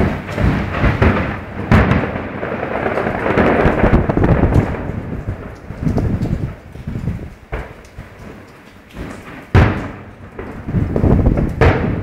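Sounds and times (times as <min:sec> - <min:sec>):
sharp firework bang: 0:00.0 - 0:05.0, 0:09.5 - 0:12.0
fireworks booming: 0:00.0 - 0:12.0.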